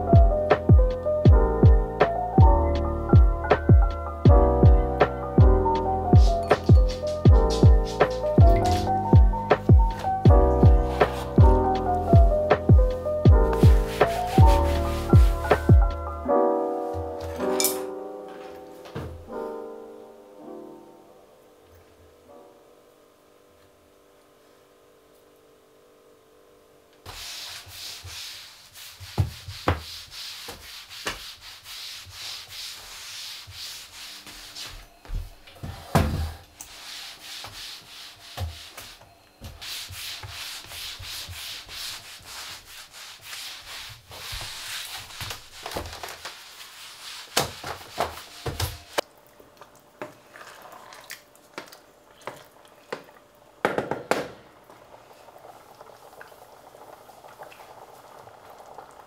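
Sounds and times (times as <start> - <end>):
scrubbing on hard surfaces: 13.5 - 15.8, 27.1 - 34.8, 36.7 - 49.0.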